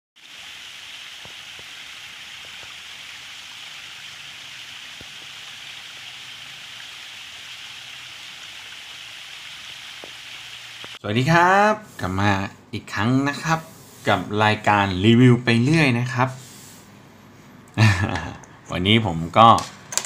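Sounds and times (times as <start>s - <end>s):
water splashing down rocks: 0.2s - 11.0s.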